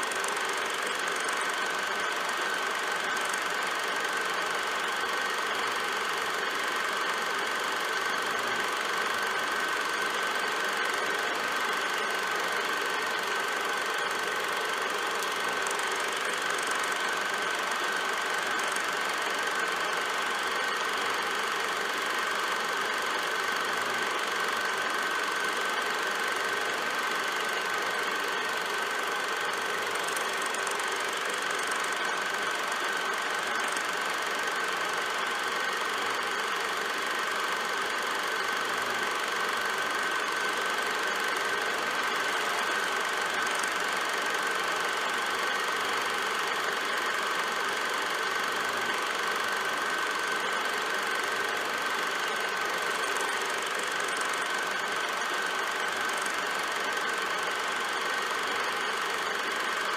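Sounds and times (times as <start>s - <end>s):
film projector whirring: 0.0s - 59.9s.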